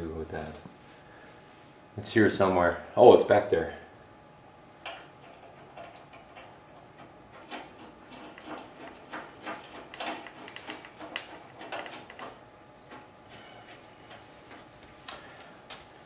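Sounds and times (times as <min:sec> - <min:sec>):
metal hardware clicking and scraping: 0:04.8 - 0:14.2.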